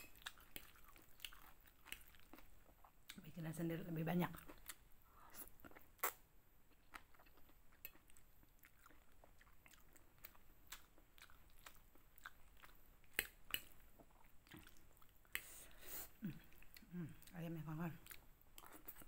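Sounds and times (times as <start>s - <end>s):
wet chewing: 0.0s - 3.2s, 6.8s - 15.5s.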